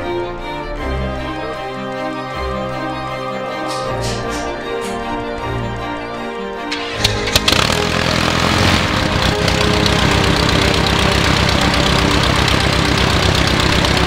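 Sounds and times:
aircraft engine idling: 0:06.7 - 0:14.0.

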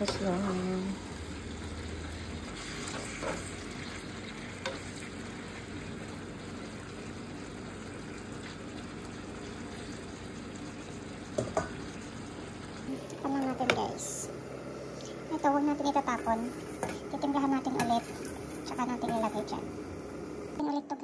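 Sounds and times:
meat sizzling in a frying pan: 0:00.0 - 0:12.9.

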